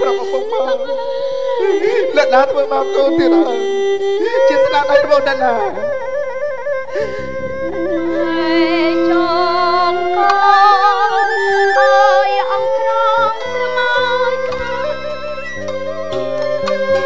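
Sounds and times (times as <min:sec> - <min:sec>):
instrumental accompaniment: 0:00.0 - 0:17.0
low repeated beat: 0:05.0 - 0:08.1, 0:14.0 - 0:17.0
woman singing: 0:07.9 - 0:15.3.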